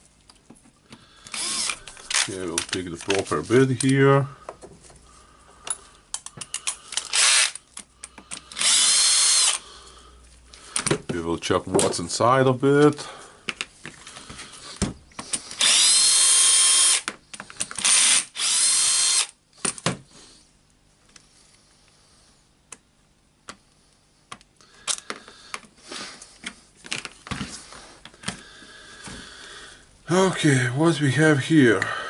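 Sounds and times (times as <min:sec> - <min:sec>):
cordless drill running: 0:01.3 - 0:02.4, 0:06.9 - 0:07.6, 0:08.4 - 0:09.6, 0:15.6 - 0:17.1, 0:17.8 - 0:19.4
small parts clicking and clattering: 0:05.6 - 0:09.6.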